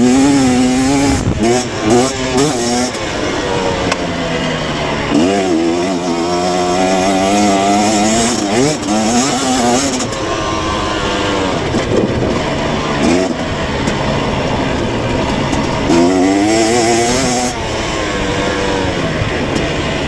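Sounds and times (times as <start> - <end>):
dirt bike engine revving: 0.0 - 20.0
steady noisy rush: 0.0 - 20.0.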